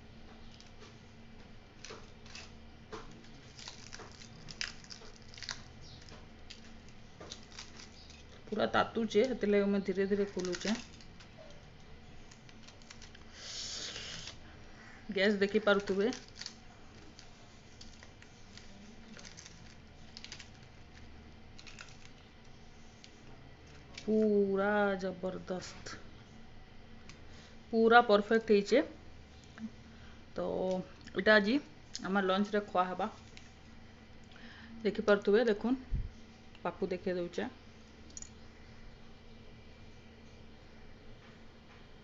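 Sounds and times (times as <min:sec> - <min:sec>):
dried leaf wrapping crackling: 0:00.1 - 0:35.6.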